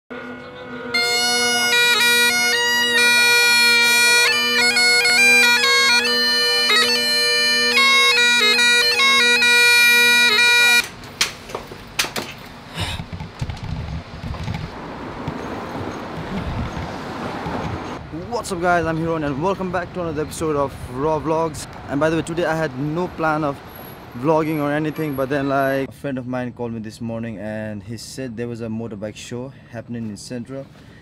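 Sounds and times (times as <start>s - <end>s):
bagpipes playing: 0.1s - 10.9s
passing traffic: 0.1s - 26.0s, 30.6s - 31.0s.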